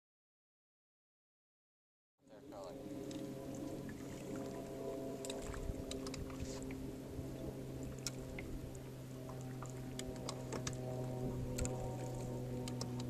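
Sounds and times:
sustained chords music: 2.3 - 13.0
sharp clicks: 12.6 - 13.0.

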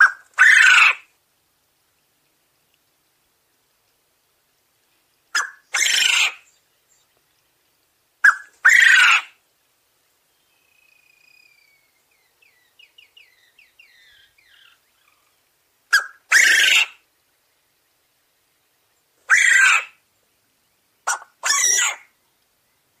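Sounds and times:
quail crowing: 0.0 - 1.1, 5.3 - 6.4, 8.2 - 9.4, 15.9 - 17.0, 19.3 - 20.0, 21.1 - 22.1.

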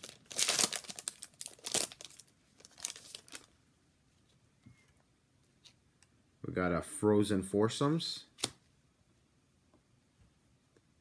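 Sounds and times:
card pack wrapper crinkling: 0.0 - 3.5.

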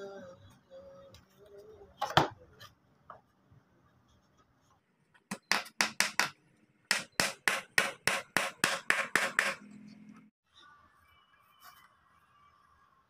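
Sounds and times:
hammer nailing into wood: 5.3 - 9.6.

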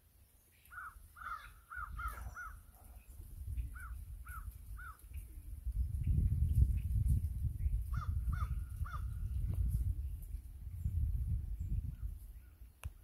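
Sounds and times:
crow cawing: 0.7 - 2.6.

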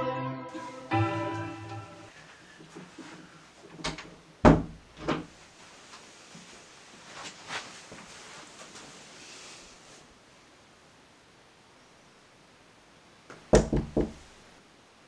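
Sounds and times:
orchestral chord: 0.0 - 2.2
door opening and shutting: 3.7 - 5.3.

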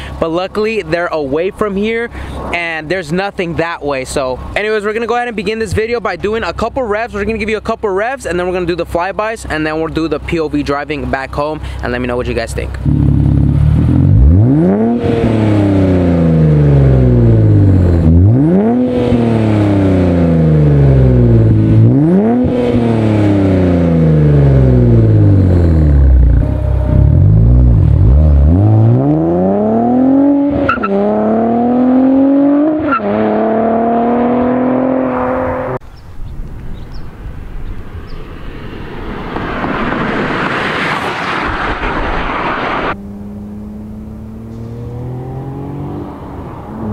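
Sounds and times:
car engine revving: 12.7 - 35.8, 37.9 - 46.9
rushing noise: 36.5 - 43.0.

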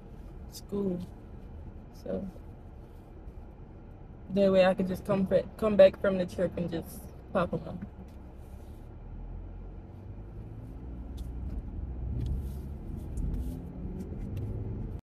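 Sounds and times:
engine and road rumble: 0.0 - 15.0.

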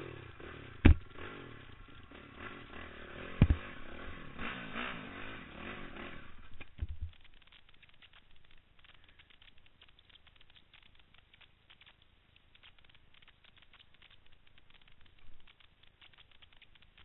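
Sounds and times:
faint clicking and crackling: 6.0 - 17.0.

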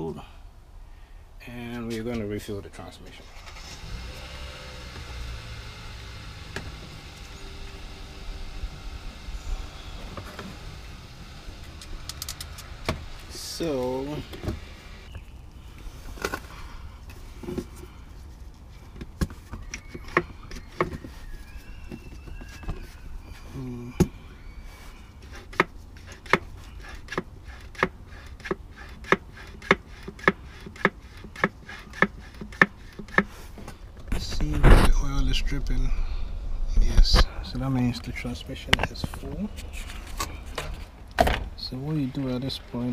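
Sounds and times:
low rumble: 33.9 - 41.6.

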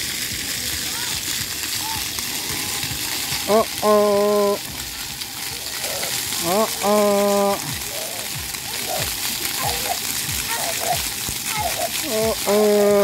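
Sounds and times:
fountain jets spraying water: 0.0 - 13.0.

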